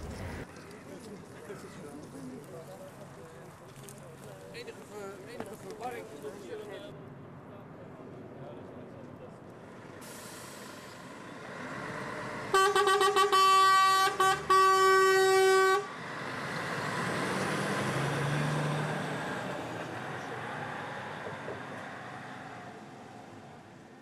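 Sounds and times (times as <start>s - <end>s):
passing vehicle engine and tyres: 0.0s - 24.0s
vehicle horn honking: 12.5s - 15.9s.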